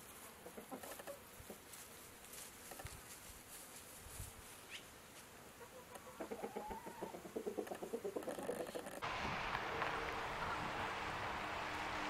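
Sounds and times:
chickens clucking: 0:00.4 - 0:01.7, 0:05.5 - 0:09.0.

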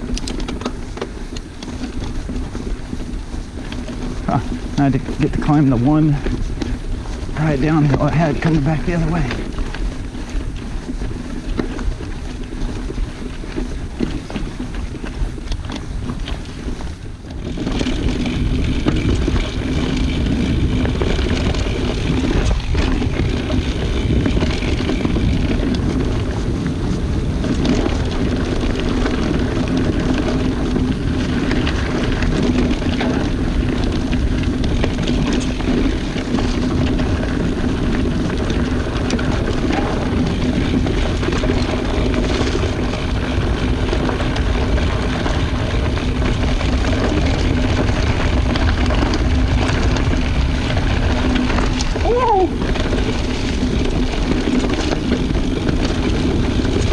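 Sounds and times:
bike tyres rushing on dirt: 0:00.0 - 0:56.9
low hum: 0:00.0 - 0:56.9
wind noise: 0:00.0 - 0:56.9.

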